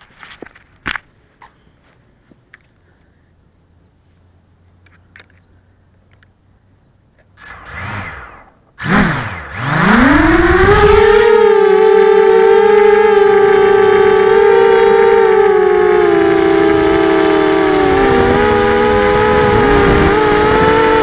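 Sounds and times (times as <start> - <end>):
drone motors whining: 7.4 - 21.0.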